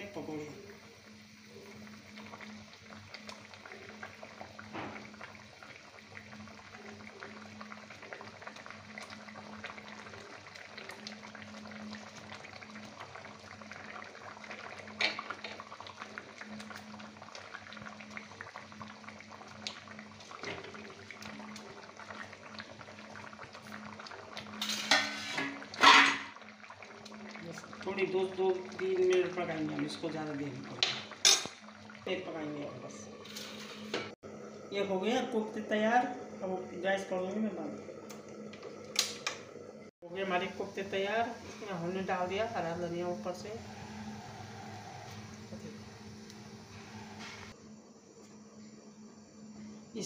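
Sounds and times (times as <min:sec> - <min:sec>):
thick sauce bubbling and popping: 0:01.0 - 0:32.1
low hum: 0:41.4 - 0:49.9.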